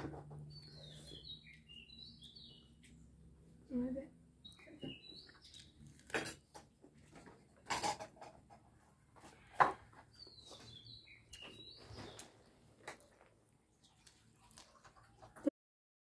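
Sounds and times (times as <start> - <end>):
small birds chirping: 0.3 - 6.6, 9.3 - 14.4
crunchy chewing of salad: 5.3 - 6.5, 14.0 - 15.1.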